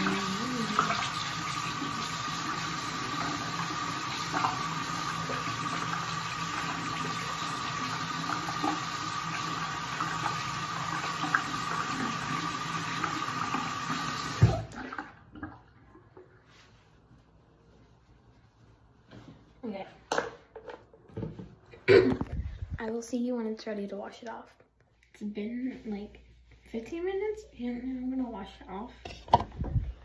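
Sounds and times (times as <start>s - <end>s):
tap running into sink: 13.9s - 14.9s.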